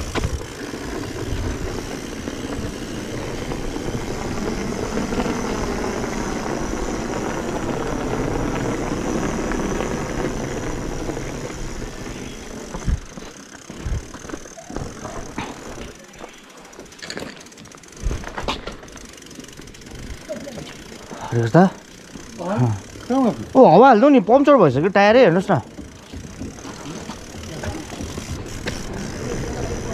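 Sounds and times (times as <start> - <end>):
bike rattling over bumps: 0.0 - 29.9
wind and tyre noise: 0.0 - 29.9.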